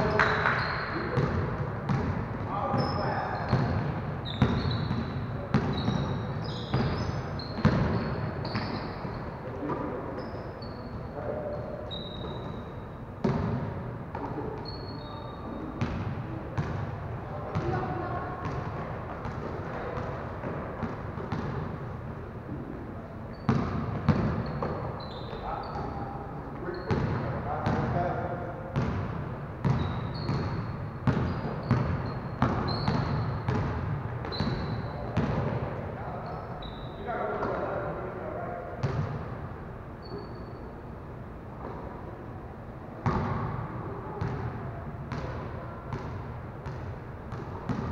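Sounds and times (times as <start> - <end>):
sneakers squeaking on court: 0.0 - 16.9, 17.5 - 21.8, 22.6 - 37.9, 38.8 - 39.3, 40.0 - 40.9, 43.0 - 44.5, 45.1 - 47.9
room background noise: 0.0 - 47.9
basketball bouncing on wooden floor: 23.4 - 24.9, 28.8 - 35.6, 43.0 - 43.5, 45.1 - 47.9.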